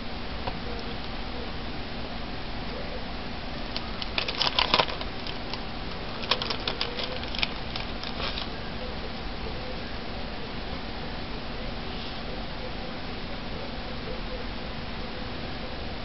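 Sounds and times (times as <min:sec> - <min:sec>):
steady background hiss: 0:00.0 - 0:16.0
plastic stencil clicking: 0:03.7 - 0:08.5.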